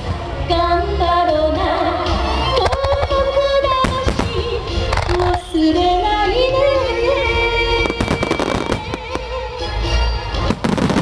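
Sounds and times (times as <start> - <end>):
melody through loudspeakers: 0.0 - 11.0
fireworks bangs and crackles: 7.8 - 9.3, 10.4 - 11.0.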